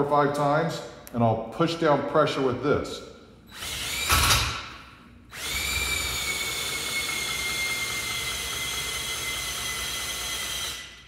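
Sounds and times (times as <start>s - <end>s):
electric drill running: 3.5s - 4.6s, 5.3s - 11.0s.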